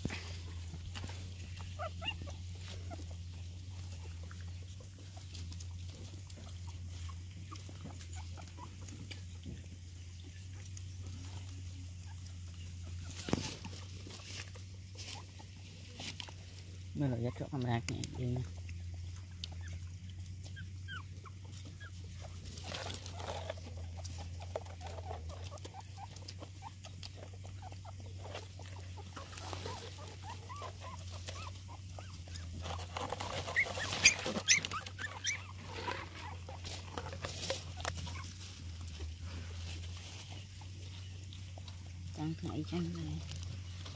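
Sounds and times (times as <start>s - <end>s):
puppies squeaking and grunting: 0.0s - 43.9s
dog eating from plastic bowl: 21.6s - 39.1s.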